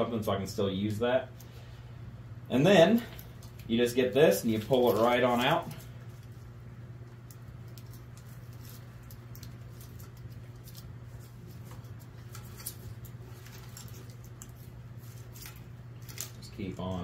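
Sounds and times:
steady low hum: 0.0 - 17.0
wires rustling and clicking: 2.5 - 17.0.

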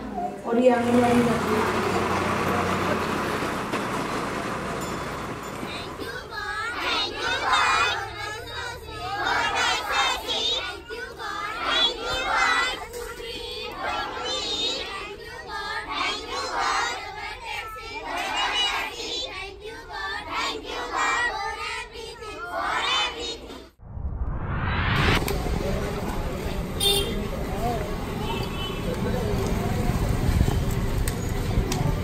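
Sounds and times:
children chanting in unison: 6.0 - 23.7.

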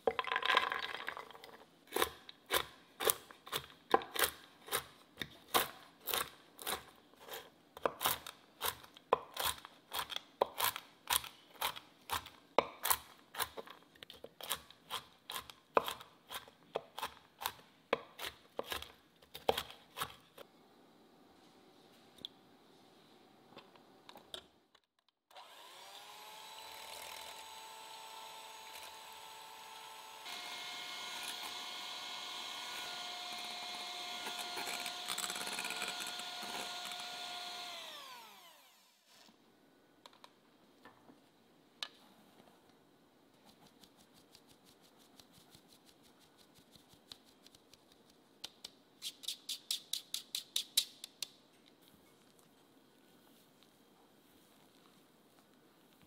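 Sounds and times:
electric hand mixer whirring: 25.3 - 39.0.

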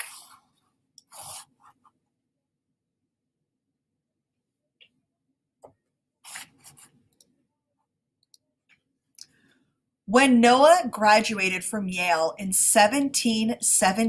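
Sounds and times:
paper rustling: 6.2 - 7.0.

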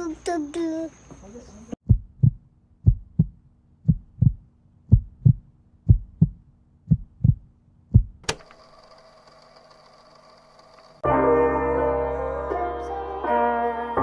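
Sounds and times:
heartbeat thumps: 1.8 - 8.2.

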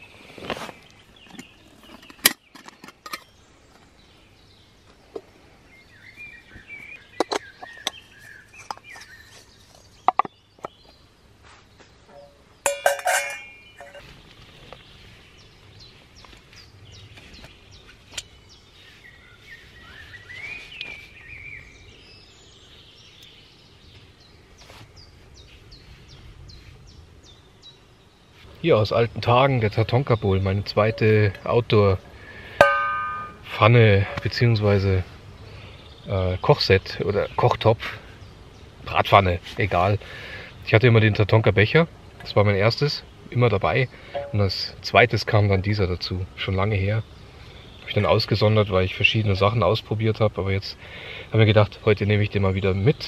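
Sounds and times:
birds chirping: 0.0 - 53.0
metal cookware clinking: 12.1 - 14.0, 32.6 - 33.4, 44.2 - 44.4.

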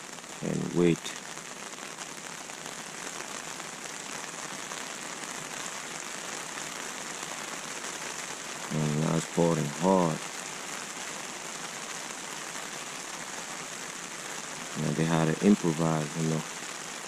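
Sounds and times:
heavy rain pouring: 0.0 - 17.0.

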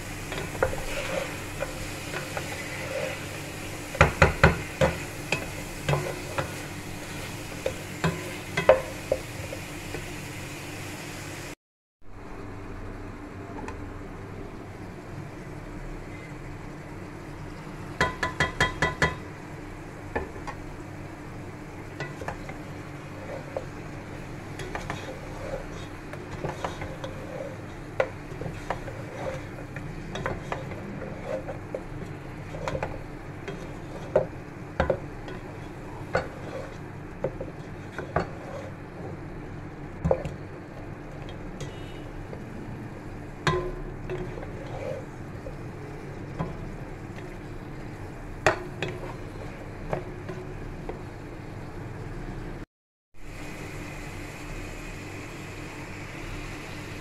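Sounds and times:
spatula scraping pot: 0.3 - 10.0, 22.0 - 39.2, 43.5 - 45.7, 46.3 - 51.0.

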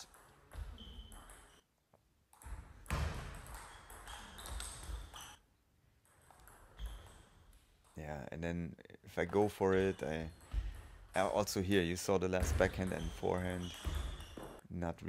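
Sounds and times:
table tennis ball hits: 2.4 - 5.4.

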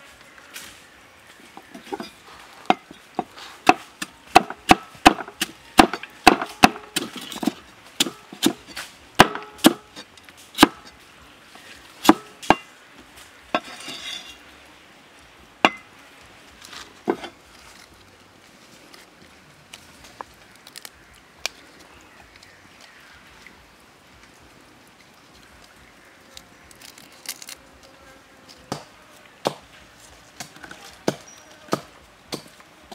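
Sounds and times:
rustle: 0.0 - 32.9
cleaver chopping on wooden block: 3.7 - 8.6, 9.2 - 9.9, 10.6 - 10.9, 12.0 - 12.7.

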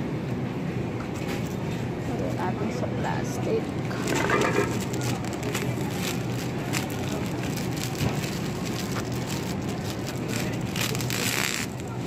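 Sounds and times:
low background hum: 0.0 - 12.0
plastic bag crinkling: 3.9 - 12.0.

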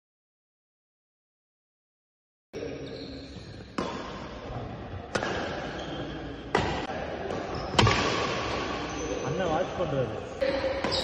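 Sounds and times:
racket hitting shuttlecock: 3.8 - 5.8, 6.5 - 8.8.

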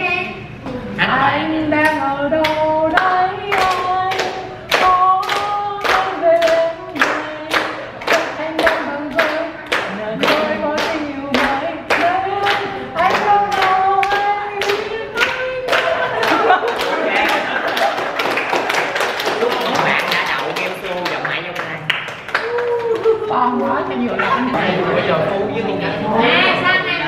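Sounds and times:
group singing: 0.0 - 17.6
people clapping in time: 2.4 - 23.3.

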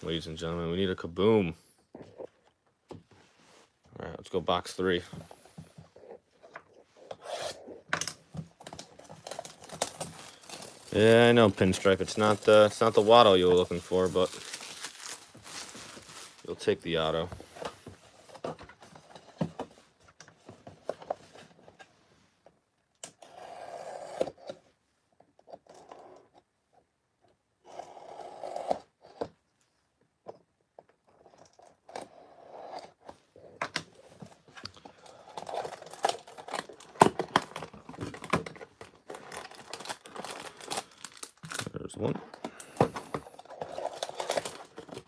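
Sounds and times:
plastic wrap crinkling and tearing: 8.1 - 17.3, 35.0 - 45.0.

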